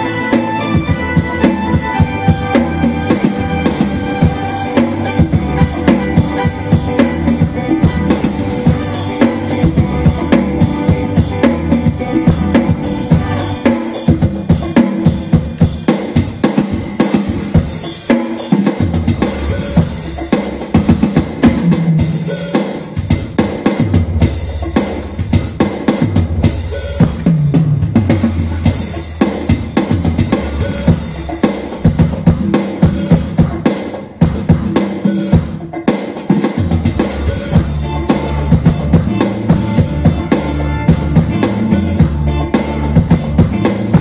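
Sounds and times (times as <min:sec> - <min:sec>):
sustained pitched instruments: 0:00.0 - 0:15.3, 0:36.9 - 0:44.0
drum kit beat: 0:00.0 - 0:44.0.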